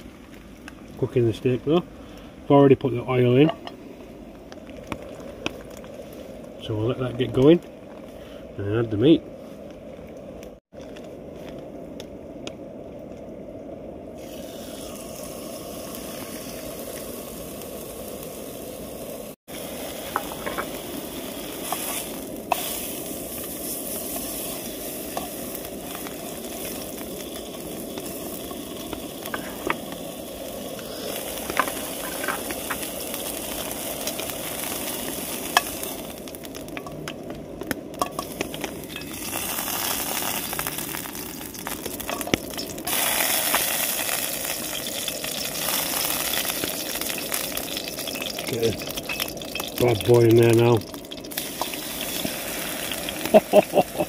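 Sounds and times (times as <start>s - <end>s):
meat sizzling in hot oil: 0.0s - 0.9s, 14.2s - 54.0s.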